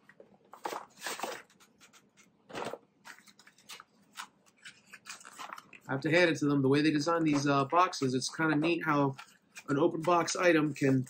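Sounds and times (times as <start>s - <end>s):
cardboard scraping and rustling: 0.5s - 3.8s.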